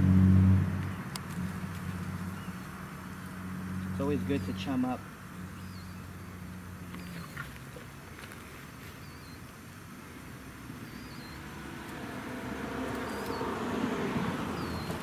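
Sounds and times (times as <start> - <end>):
passing vehicle motor: 0.0 - 7.6, 10.8 - 15.0.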